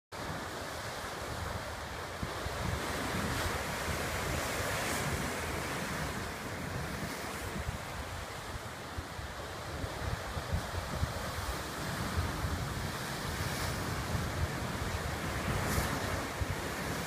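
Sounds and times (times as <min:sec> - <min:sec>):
wind buffeting microphone: 0:00.2 - 0:17.0
surf breaking over rocks: 0:09.9 - 0:17.0.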